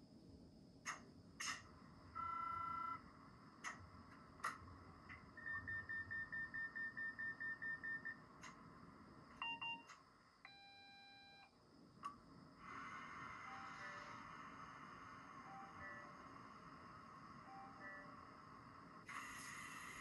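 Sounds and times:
electronic beeps: 0:05.1 - 0:08.3, 0:09.4 - 0:11.5, 0:15.4 - 0:16.2, 0:17.4 - 0:18.2
rapid high beeps: 0:05.4 - 0:08.2
two-tone signal: 0:15.4 - 0:16.2, 0:17.4 - 0:18.2.

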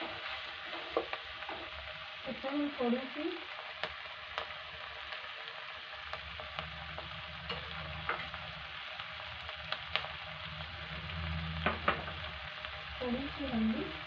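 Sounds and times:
wooden spatula scraping a pan: 0:00.0 - 0:01.8
vegetables sizzling in a pan: 0:00.0 - 0:14.0.

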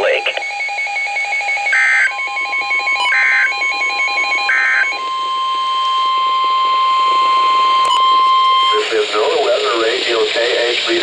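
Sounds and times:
long steady warning tone: 0:00.0 - 0:11.0
digital data tone bursts: 0:01.7 - 0:10.7
rapid pulsing alert beep: 0:01.8 - 0:05.8.

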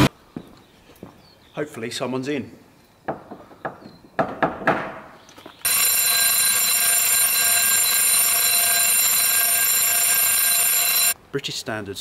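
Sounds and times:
electric fire alarm bell ringing: 0:05.6 - 0:11.2.

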